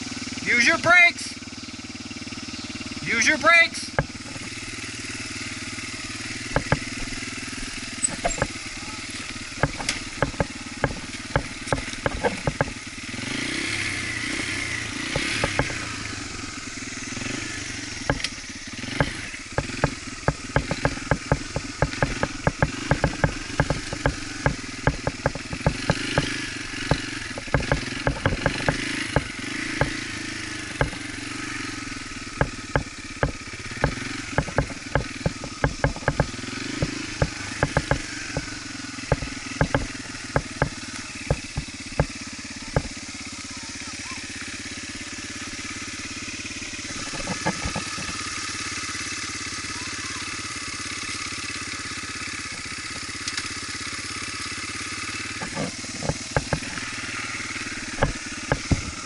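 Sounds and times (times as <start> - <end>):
dirt bike engine revving: 0.0 - 59.0
sharp clicks and knocks: 4.0 - 4.6, 6.5 - 12.8, 15.1 - 15.9, 18.0 - 18.4, 19.0 - 31.2, 32.3 - 43.0, 46.9 - 48.4, 52.5 - 53.5, 55.3 - 57.2, 57.8 - 59.0.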